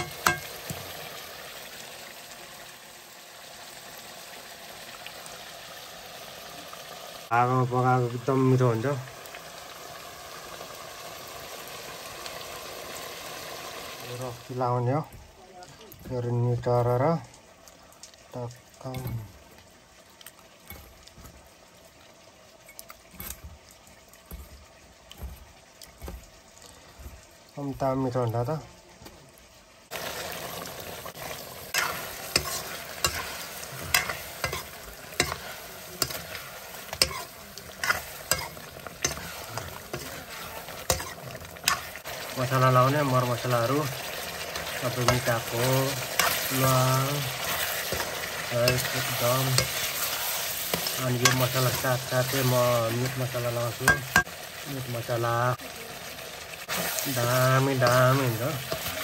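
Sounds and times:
metal ladle clanking on wok: 0:00.0 - 0:00.8, 0:31.8 - 0:40.1, 0:53.8 - 0:54.3
meat sizzling in a wok: 0:00.0 - 0:59.0.

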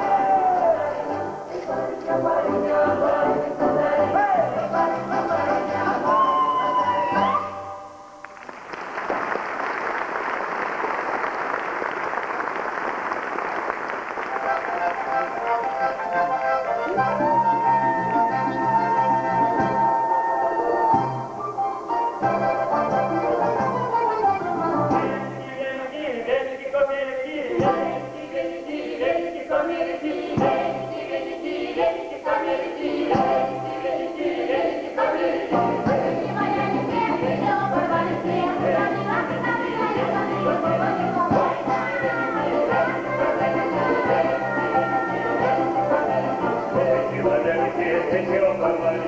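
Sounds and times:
choir singing: 0:00.0 - 0:07.8, 0:27.6 - 0:49.0
audience applauding: 0:08.2 - 0:17.2.

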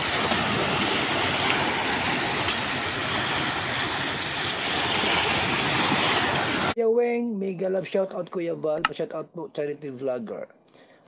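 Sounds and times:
waves sloshing and splashing: 0:00.0 - 0:06.8.

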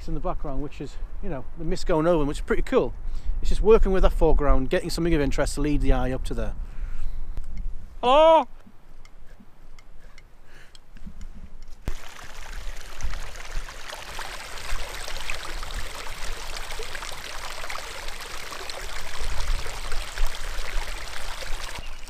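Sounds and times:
stream trickling over stones: 0:11.9 - 0:22.0.

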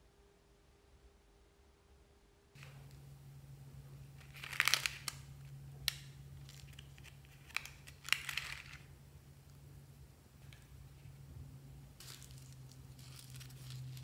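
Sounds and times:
stiff paper crinkling: 0:12.0 - 0:14.0.

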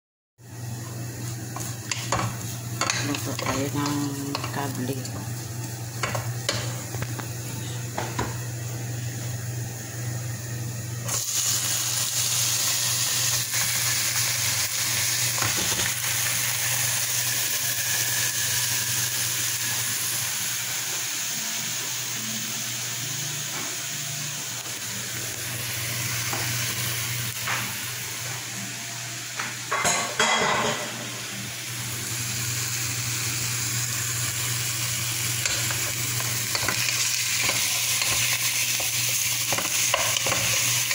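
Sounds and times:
food sizzling in hot oil: 0:00.4 - 0:07.4, 0:11.0 - 0:28.4, 0:29.7 - 0:40.9
pots clattering: 0:29.7 - 0:31.0.

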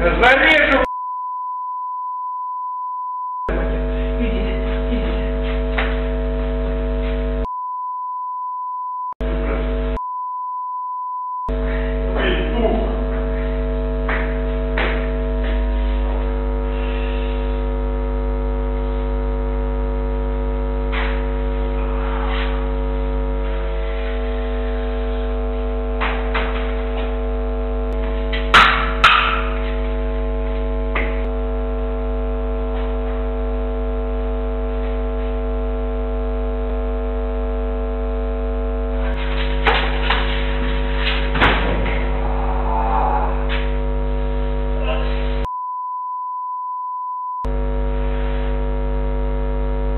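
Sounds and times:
electrical mains hum: 0:00.0 - 0:00.9, 0:03.5 - 0:07.5, 0:09.2 - 0:10.0, 0:11.5 - 0:45.5, 0:47.4 - 0:49.9
thuds: 0:39.6 - 0:42.1.

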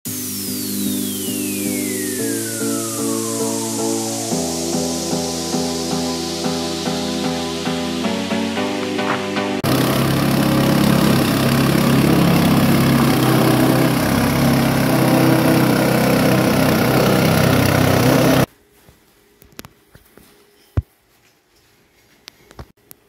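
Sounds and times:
small petrol engine running: 0:09.6 - 0:18.5.

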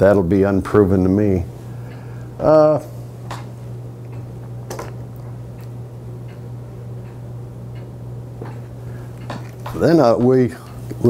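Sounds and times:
steady low hum: 0:00.0 - 0:11.0
faint clicks and knocks: 0:03.3 - 0:11.0.

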